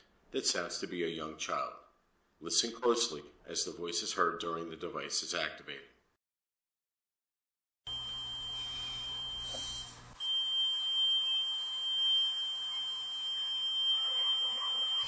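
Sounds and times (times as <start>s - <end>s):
high-pitched electronic alarm tone: 7.9s - 15.0s.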